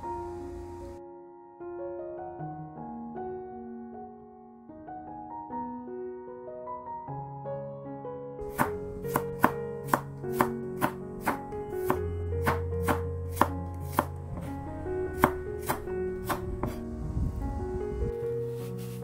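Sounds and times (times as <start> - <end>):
knife slicing garlic on board: 8.4 - 14.6, 15.2 - 16.8.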